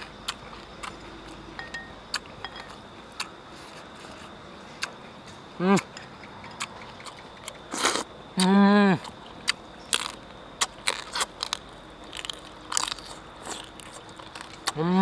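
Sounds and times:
voice humming: 0:05.6 - 0:05.9, 0:08.4 - 0:09.1, 0:14.7 - 0:15.0
crunching crispy pork skin: 0:09.9 - 0:14.8.

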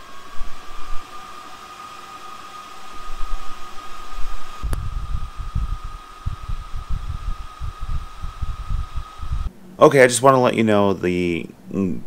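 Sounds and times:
fan hiss: 0:00.0 - 0:12.0
high whine: 0:00.0 - 0:12.0
low rumbles: 0:02.7 - 0:09.5.

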